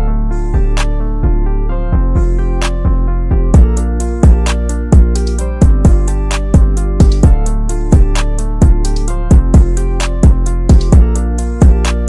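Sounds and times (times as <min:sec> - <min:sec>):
held chords: 0:00.0 - 0:12.0
booming kick drum: 0:03.3 - 0:07.4, 0:08.0 - 0:11.8.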